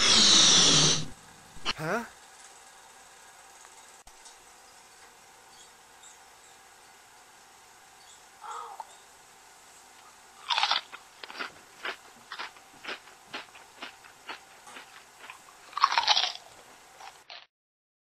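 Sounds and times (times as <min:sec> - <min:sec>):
peanut shell crunching: 0:10.4 - 0:17.5.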